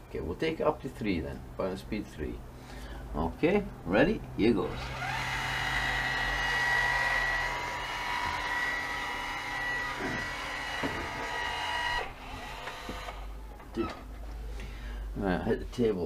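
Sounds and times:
caulking gun motor whining: 0:04.7 - 0:13.4.

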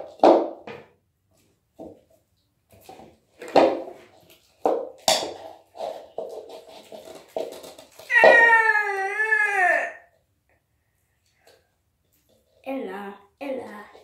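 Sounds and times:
high wavering whining cry: 0:08.1 - 0:10.1.

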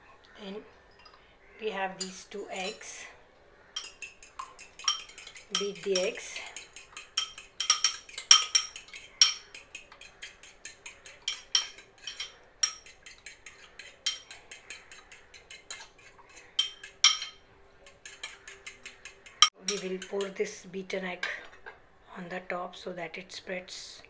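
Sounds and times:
fork clinking against bowl: 0:03.8 - 0:20.4.

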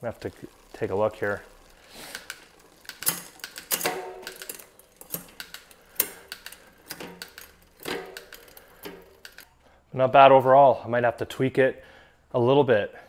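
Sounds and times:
bike chain running over cogs: 0:00.0 - 0:09.5
derailleur shifting clicks: 0:01.5 - 0:09.5.

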